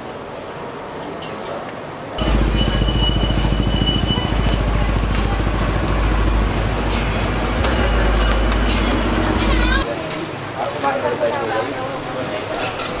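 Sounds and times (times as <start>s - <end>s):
vehicle engine rumbling: 2.2s - 9.9s.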